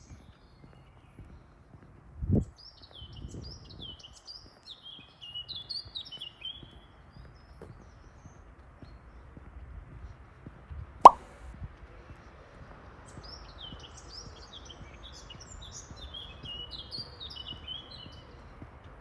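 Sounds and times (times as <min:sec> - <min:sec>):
loud sharp pop: 0:11.1 - 0:11.4
songbird chirping: 0:13.4 - 0:18.6.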